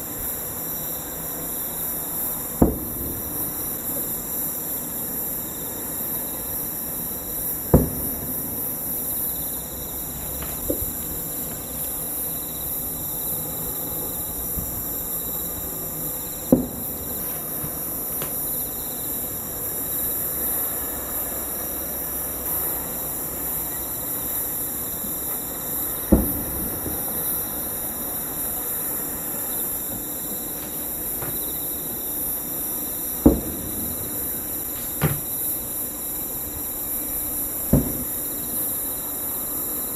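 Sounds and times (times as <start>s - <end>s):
night insects chorus: 0.0s - 39.9s
distant firework booms: 2.5s - 3.7s, 7.6s - 12.3s, 14.1s - 18.7s, 25.9s - 27.6s, 33.0s - 35.4s, 37.7s - 38.3s.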